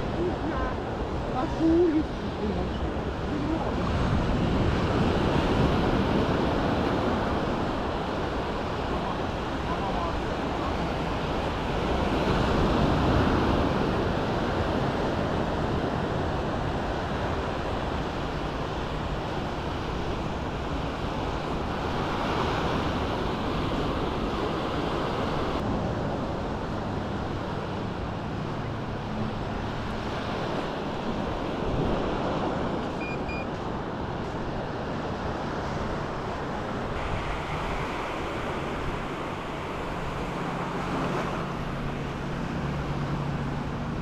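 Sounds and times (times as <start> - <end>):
small waves breaking on shore: 0.0 - 44.0
wind on microphone: 0.0 - 44.0.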